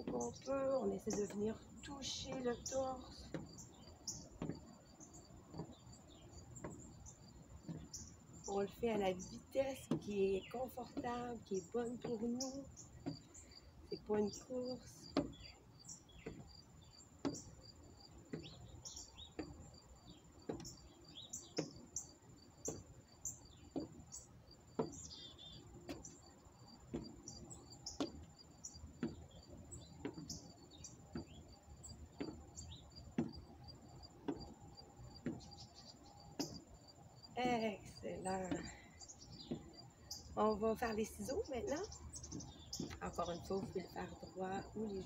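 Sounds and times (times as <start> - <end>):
footsteps on wooden boards: 0.0 - 45.0
bird chirps: 18.2 - 33.6, 37.4 - 45.0.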